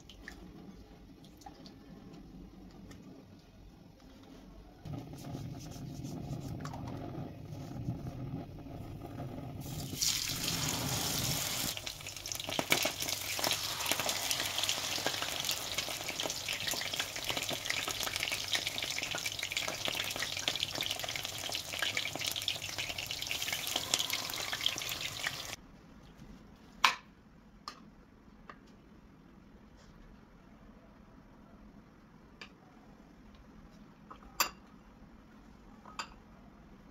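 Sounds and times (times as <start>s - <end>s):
food frying in hot oil: 9.6s - 25.6s.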